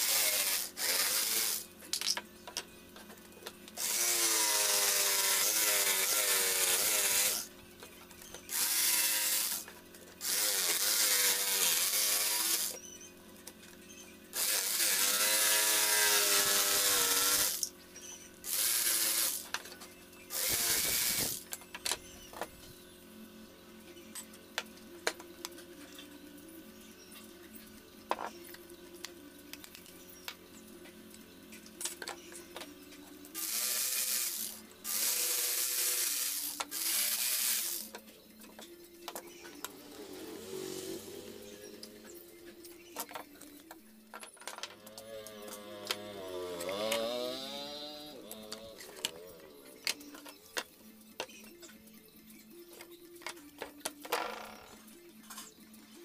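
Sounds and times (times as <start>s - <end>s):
electric jigsaw cutting plywood: 0.0s - 1.6s, 3.8s - 7.5s, 8.5s - 12.8s, 14.4s - 17.7s, 18.5s - 19.5s, 20.3s - 21.4s, 33.4s - 37.9s, 39.6s - 41.9s, 44.8s - 49.5s.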